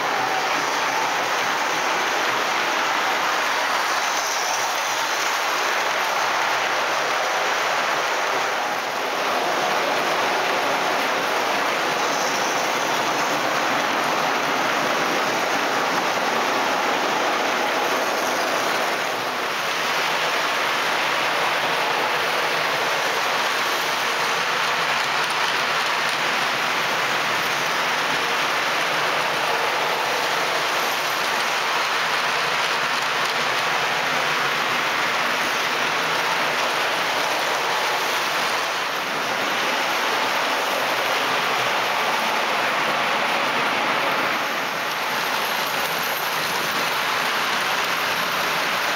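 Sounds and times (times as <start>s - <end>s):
model train wheels rattling on rail: 0.0s - 48.9s.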